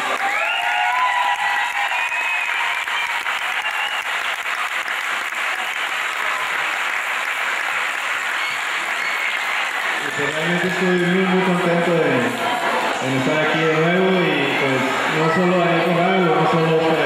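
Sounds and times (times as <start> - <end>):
crowd applauding: 0.0 - 17.0
voices cheering: 0.0 - 17.0.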